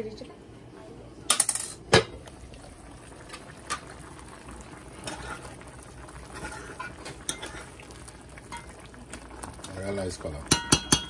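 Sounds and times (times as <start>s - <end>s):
stew bubbling in a pot: 2.1s - 11.0s
pot and utensils clicking: 6.3s - 7.8s, 10.4s - 11.0s.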